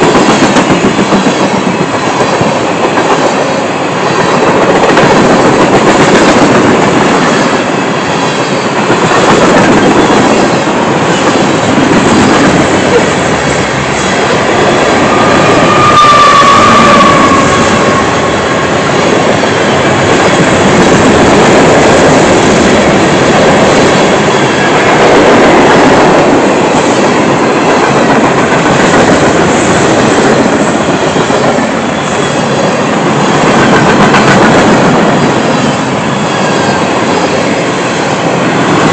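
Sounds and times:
freight cars rumbling on rails: 0.0s - 38.9s
high wheel squeal: 12.8s - 18.8s, 31.8s - 33.6s, 35.1s - 37.2s.

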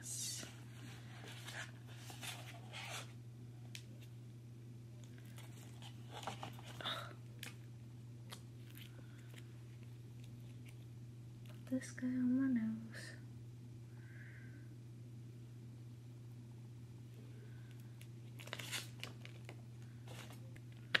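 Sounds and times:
steady low hum: 0.0s - 21.0s
paper packet crinkling: 5.1s - 7.7s, 18.2s - 21.0s.

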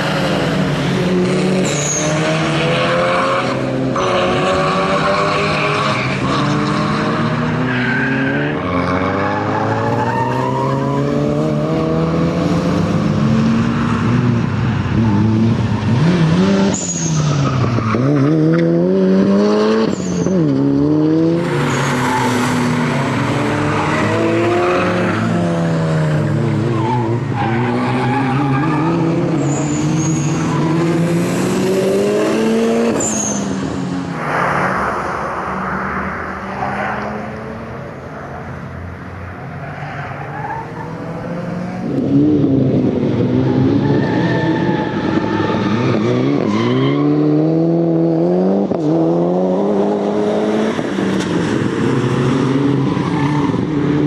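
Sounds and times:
tyre squeals: 1.6s - 2.2s, 16.7s - 18.1s, 19.8s - 20.5s, 26.7s - 30.8s, 33.0s - 33.6s.

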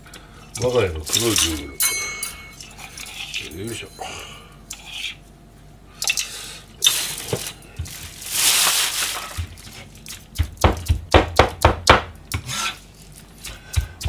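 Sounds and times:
handling noises: 6.9s - 10.4s
cleaver chopping on plastic board: 10.3s - 12.5s.

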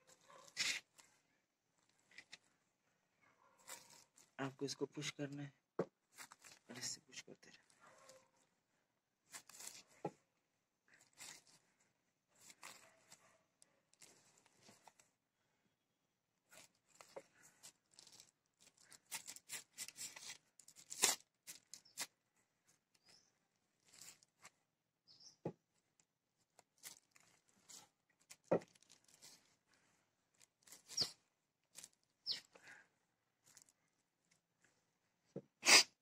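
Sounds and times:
plastic bag crinkling: 3.6s - 4.4s, 6.1s - 6.8s, 9.3s - 9.9s, 10.9s - 11.6s, 12.4s - 13.2s, 13.9s - 15.0s, 16.5s - 22.1s, 23.8s - 24.5s, 26.0s - 29.6s, 30.3s - 32.8s, 33.4s - 33.8s
rubber grip rubbing: 30.6s - 31.2s.

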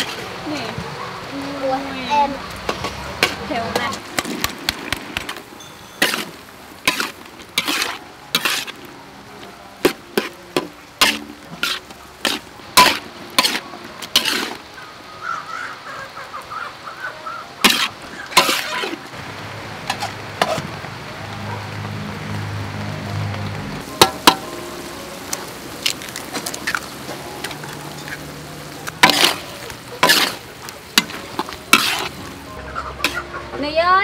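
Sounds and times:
light sizzle: 0.0s - 34.0s
metal spatula scraping a wok: 5.2s - 8.9s, 9.8s - 14.6s, 17.6s - 19.0s, 28.9s - 32.3s, 33.0s - 33.3s.

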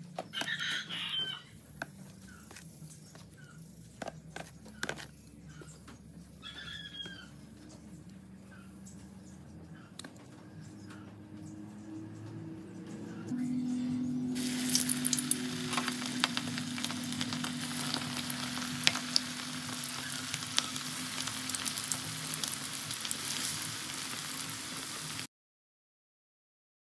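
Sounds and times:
low hum: 10.6s - 24.8s
chicken hitting hot oil: 14.4s - 25.3s
deep frying sizzle and pops: 14.4s - 25.3s.

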